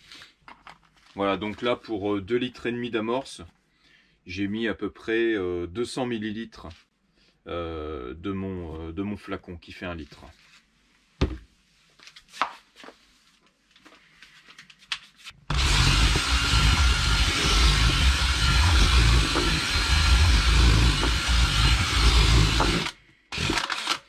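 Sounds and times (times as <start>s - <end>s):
cordless drill mixing bait: 15.5s - 24.0s.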